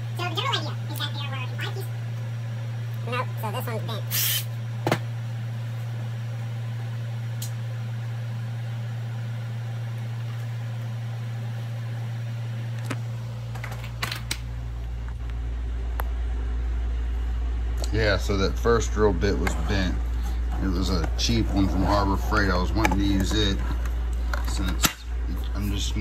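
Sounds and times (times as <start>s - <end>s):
steady low hum: 0.0s - 26.0s
phone handling rumble: 12.6s - 16.2s.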